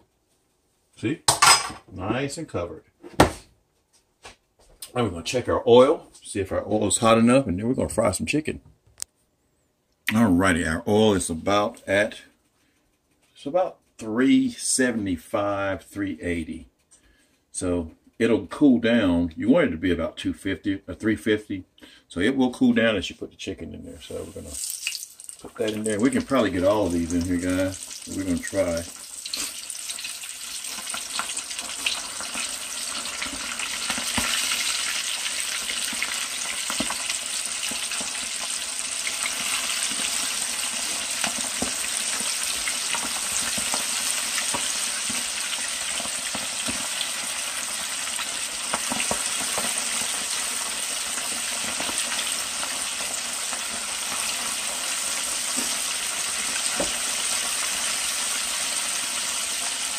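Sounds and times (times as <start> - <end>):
chicken deep-frying in oil: 24.1 - 59.9.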